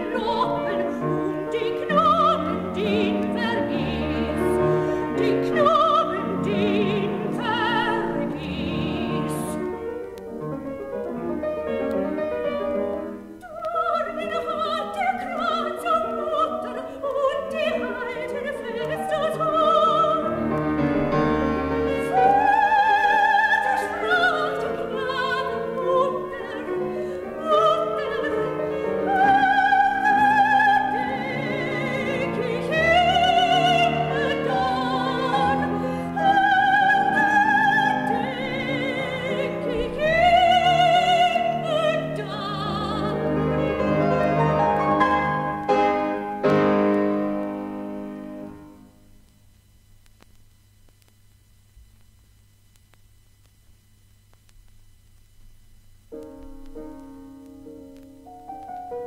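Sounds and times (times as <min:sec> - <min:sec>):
soprano singing with vibrato: 0:00.0 - 0:09.8, 0:13.4 - 0:20.6, 0:21.8 - 0:46.9
piano accompaniment: 0:00.0 - 0:13.9, 0:17.7 - 0:48.9, 0:56.1 - 0:59.0.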